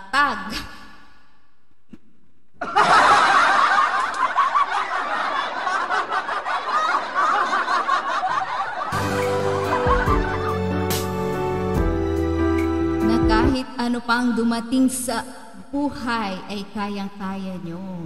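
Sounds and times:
crowd laughing: 0:02.6 - 0:11.5
music: 0:08.9 - 0:13.8.

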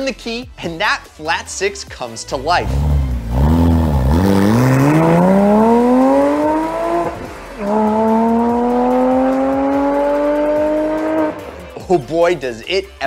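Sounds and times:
car engine accelerating: 0:02.6 - 0:11.8.

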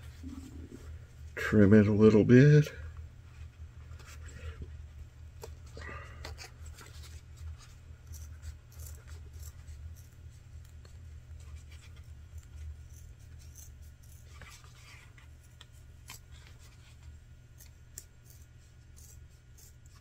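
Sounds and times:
steady low hum: 0:00.0 - 0:20.0
scissors snipping leather: 0:08.0 - 0:10.8, 0:12.3 - 0:14.5, 0:17.6 - 0:20.0.

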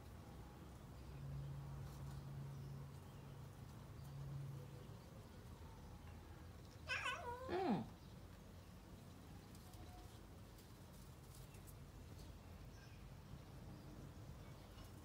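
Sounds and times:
cat meowing: 0:06.8 - 0:07.9.

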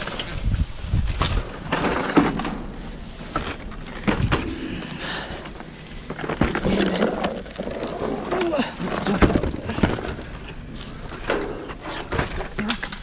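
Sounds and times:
plastic and cardboard rustling: 0:00.0 - 0:13.0.

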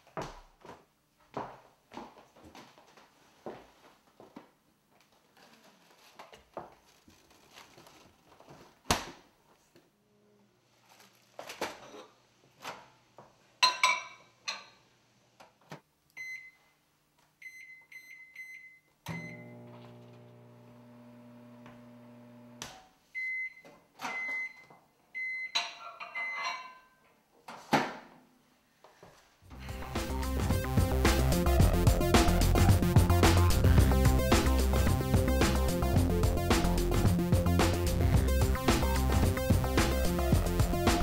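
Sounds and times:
microwave end beeps: 0:16.2 - 0:16.6, 0:17.4 - 0:19.8
microwave keypad beeps: 0:16.2 - 0:16.6, 0:17.4 - 0:19.5, 0:25.2 - 0:25.6
microwave humming: 0:19.1 - 0:22.6
music: 0:29.5 - 0:41.0.

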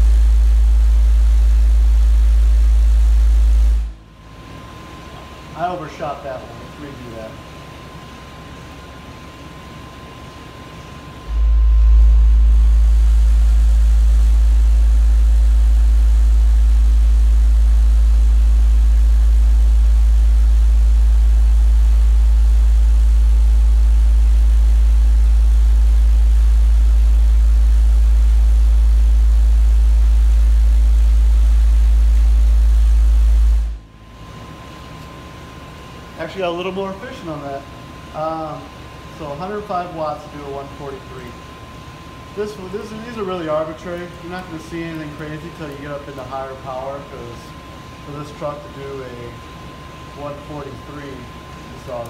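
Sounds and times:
subwoofer low test tone: 0:00.0 - 0:05.8, 0:10.6 - 0:34.8.

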